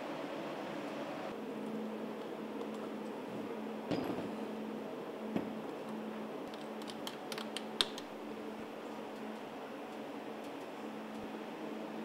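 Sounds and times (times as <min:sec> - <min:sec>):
steady low hum: 0:00.0 - 0:12.0
hands clicking and tapping metal: 0:06.4 - 0:08.1.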